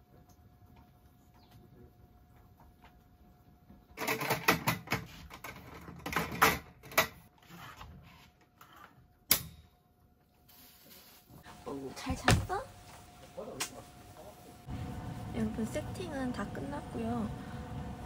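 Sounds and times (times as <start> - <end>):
sharp snap: 13.6 - 13.8.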